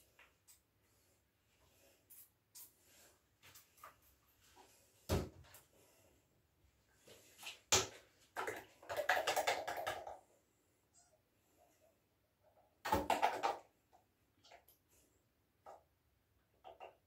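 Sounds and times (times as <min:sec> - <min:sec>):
plastic bottles knocking: 0:07.8 - 0:10.2, 0:12.8 - 0:13.7.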